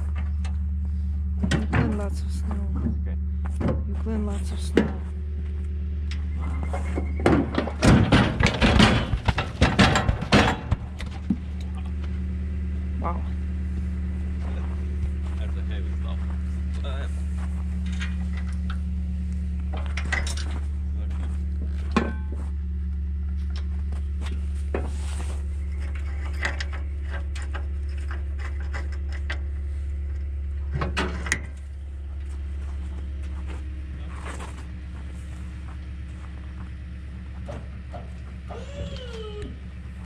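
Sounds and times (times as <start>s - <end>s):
engine idling: 0.0s - 40.0s
knocks and clunks: 1.4s - 5.2s, 6.1s - 12.2s, 19.6s - 22.5s, 25.7s - 32.3s.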